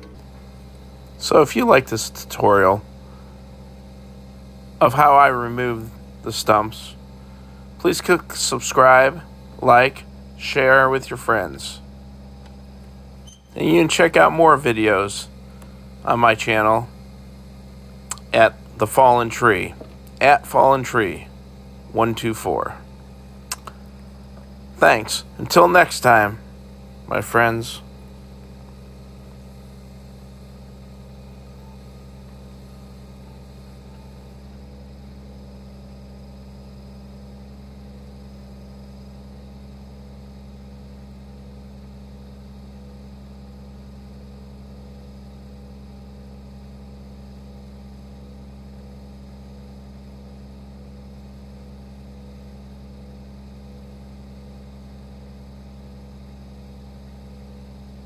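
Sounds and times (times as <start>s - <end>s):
tractor diesel engine idling: 0.0s - 36.4s.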